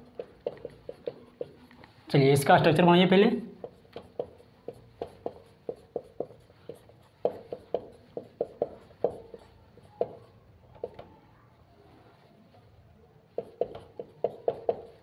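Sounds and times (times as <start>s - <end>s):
marker tapping on whiteboard: 0.0s - 1.7s, 3.6s - 11.1s, 13.3s - 15.0s.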